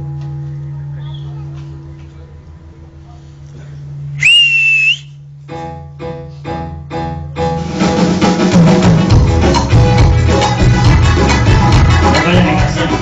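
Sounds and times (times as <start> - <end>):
loud shrill whistle: 4.2 - 5.2
live band playing latin dance music: 7.4 - 13.0.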